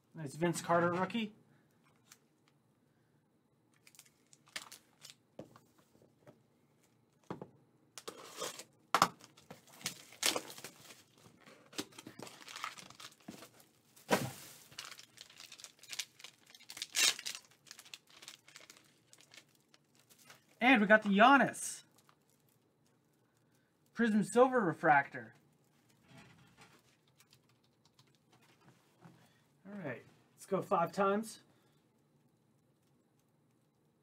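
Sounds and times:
plastic packaging crinkling and tearing: 3.8s - 5.2s, 8.0s - 21.2s, 21.8s - 22.9s.

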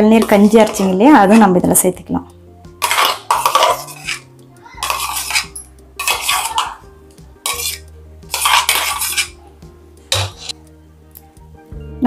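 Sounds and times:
metal spoon scraping steel jar: 0.0s - 1.6s, 2.8s - 6.8s, 7.4s - 9.4s, 10.1s - 10.6s
soft background music: 0.0s - 12.0s.

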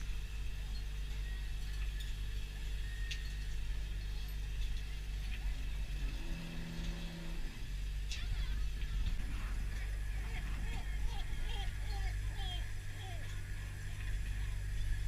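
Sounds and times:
boat engine and machinery humming: 0.0s - 15.0s
higher hum: 5.4s - 15.0s.

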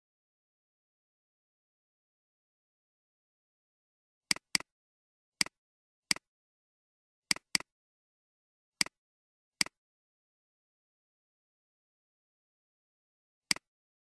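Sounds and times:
computer mouse clicking: 4.3s - 4.7s, 7.3s - 7.7s, 9.6s - 9.8s.

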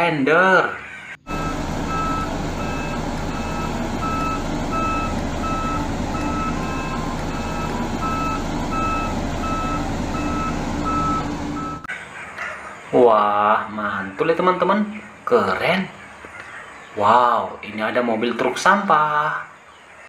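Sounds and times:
diesel engine drone: 1.2s - 11.9s
reversing alarm beeping: 1.2s - 11.9s.

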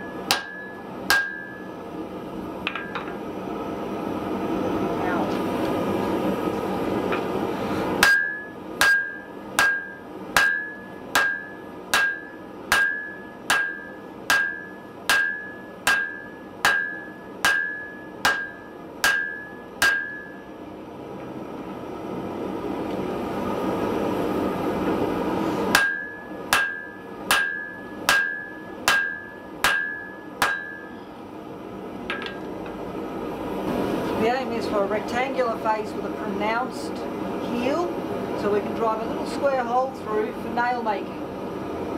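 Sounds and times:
hammer blows on anvil: 8.0s - 20.4s, 25.7s - 31.0s.

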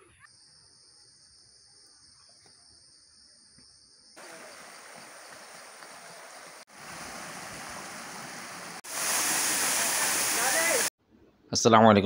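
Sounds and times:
waterfall rushing: 4.2s - 10.9s.

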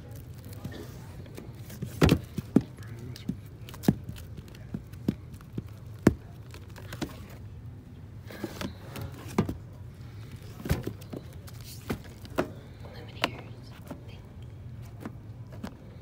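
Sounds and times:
low steady hum: 0.0s - 16.0s
record sleeves knocking: 1.3s - 7.4s.

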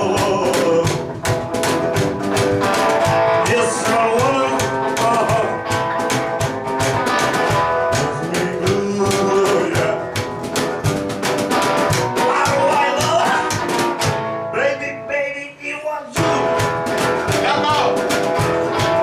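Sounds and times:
person singing: 0.0s - 1.3s, 3.3s - 6.0s, 7.6s - 10.4s, 12.1s - 13.9s, 14.5s - 16.8s
plucked double bass: 0.0s - 14.8s
guitar: 0.0s - 19.0s.

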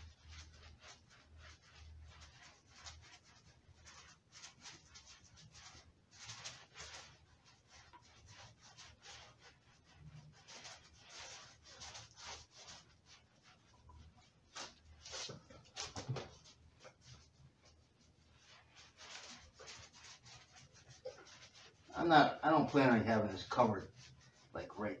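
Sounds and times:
paint roller scrubbing: 0.0s - 25.0s.

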